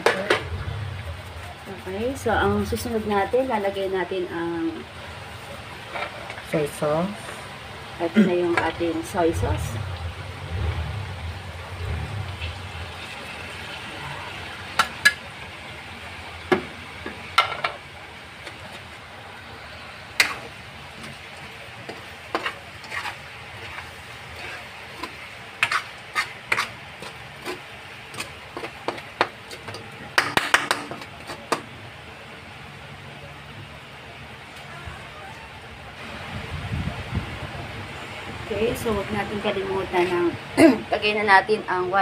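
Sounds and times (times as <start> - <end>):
metal spatula scraping wok: 0.0 - 3.9, 8.6 - 15.3, 19.6 - 29.9
chicken sizzling in a wok: 0.0 - 34.5.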